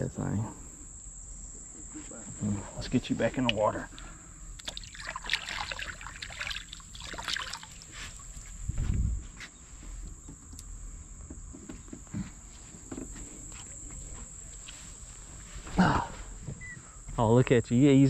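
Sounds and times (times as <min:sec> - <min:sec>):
high insect drone: 0:00.0 - 0:18.0
heavy low thump: 0:08.6 - 0:09.3.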